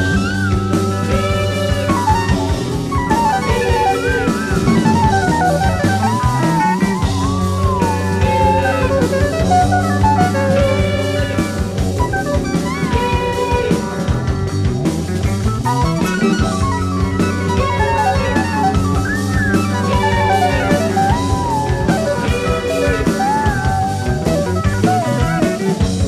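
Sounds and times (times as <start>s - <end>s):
gliding bending lead notes: 0.0s - 26.0s
rock band playing: 0.0s - 26.0s.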